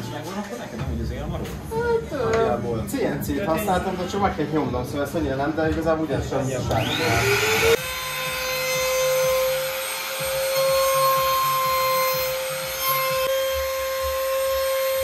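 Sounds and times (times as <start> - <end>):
power tool whining: 6.7 - 15.0.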